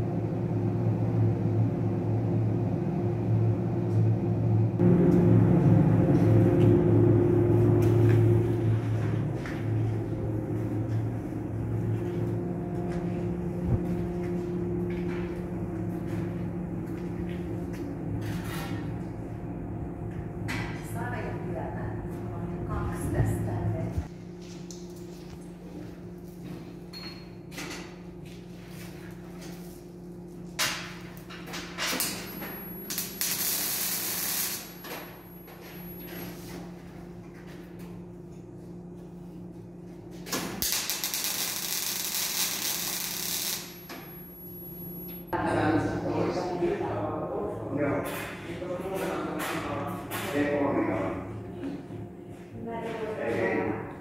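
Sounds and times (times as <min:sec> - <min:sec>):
workshop machinery hum: 0:00.0 - 0:54.0
welding arc hissing and crackling: 0:32.8 - 0:35.2, 0:40.6 - 0:43.8.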